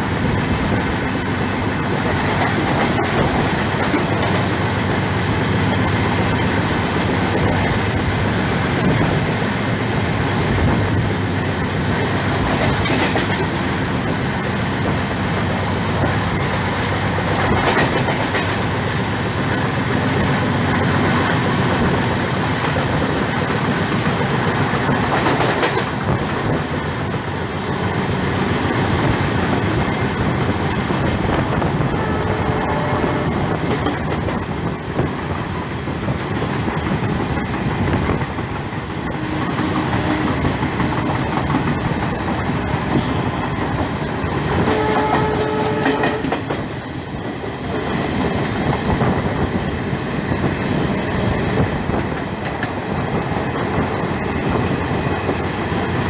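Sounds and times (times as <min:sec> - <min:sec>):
train wheels clattering: 0:00.0 - 0:31.8, 0:32.8 - 0:49.7
horn-like tone: 0:31.9 - 0:33.3.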